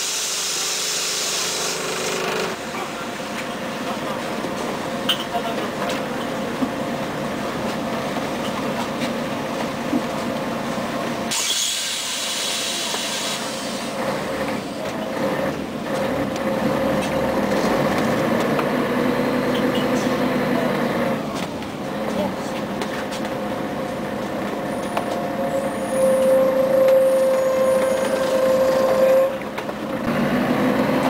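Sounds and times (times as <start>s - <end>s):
bus engine whine: 0.0s - 31.0s
air hiss: 11.3s - 14.0s.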